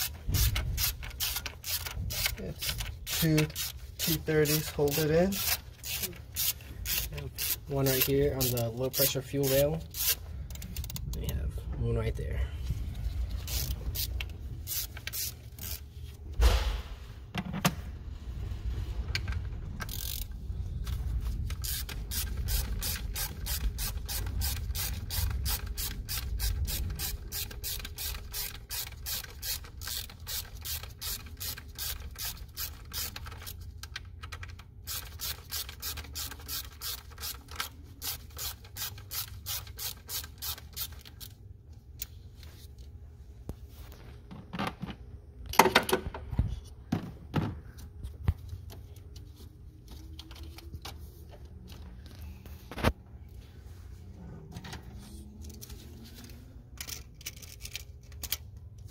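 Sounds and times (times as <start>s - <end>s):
hand ratchet clicking: 0.0s - 11.1s, 13.4s - 15.9s, 19.8s - 20.4s, 21.5s - 41.3s.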